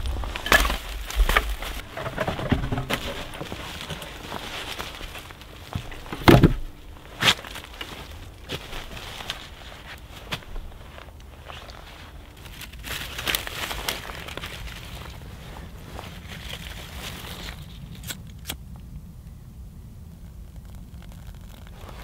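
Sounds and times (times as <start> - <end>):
footsteps crunching on frozen leaves: 0.0 - 1.9, 2.7 - 17.9, 21.7 - 22.0
log thudding on ground: 0.0 - 9.5
rustling and crunching: 0.0 - 18.6, 20.2 - 22.0.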